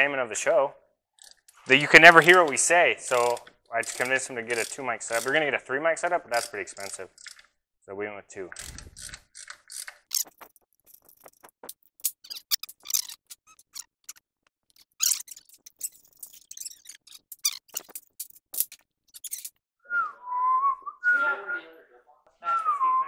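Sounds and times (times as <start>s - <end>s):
hand tools clicking and clinking: 1.2s - 5.4s, 6.3s - 7.5s, 8.6s - 19.6s.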